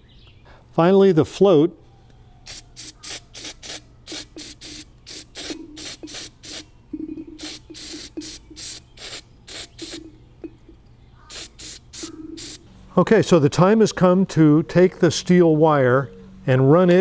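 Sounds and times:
aerosol spray bursts: 2.5s - 6.7s, 7.4s - 10.0s, 11.3s - 12.6s.

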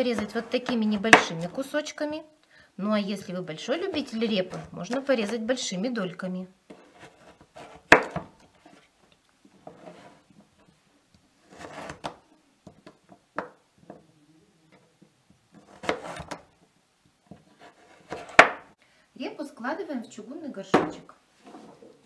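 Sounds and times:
knife cutting turnip: 15.6s - 16.4s.

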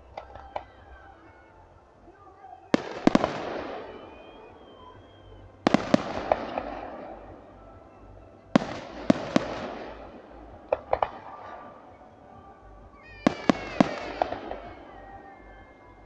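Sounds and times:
firework shells bursting: 2.7s - 7.2s, 13.2s - 15.0s.

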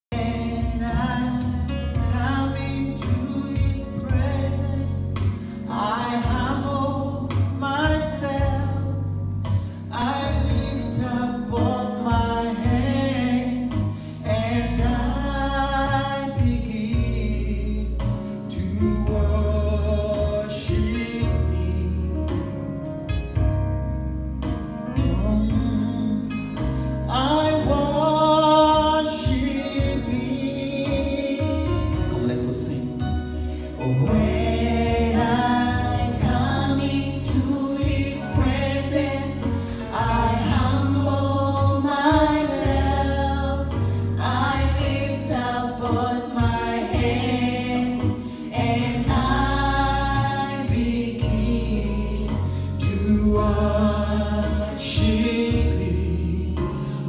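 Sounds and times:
man singing lead: 0.0s - 8.8s, 9.9s - 22.6s, 27.1s - 33.1s, 33.7s - 41.0s
gospel singing through microphones: 0.0s - 22.7s, 24.9s - 57.0s
amplified accompaniment with heavy bass: 0.0s - 57.0s.

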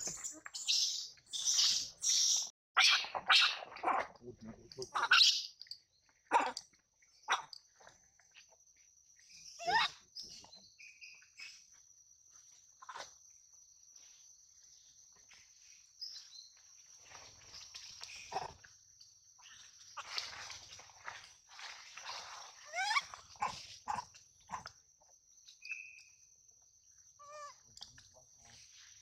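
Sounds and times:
young monkey crying: 4.8s - 5.5s, 9.6s - 10.0s, 27.2s - 27.6s.

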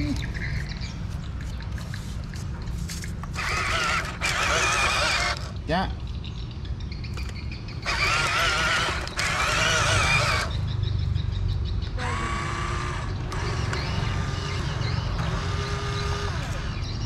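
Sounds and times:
wavering chirping calls: 0.0s - 17.0s
electric motor whine: 3.4s - 5.6s, 7.8s - 10.6s, 12.0s - 16.9s.

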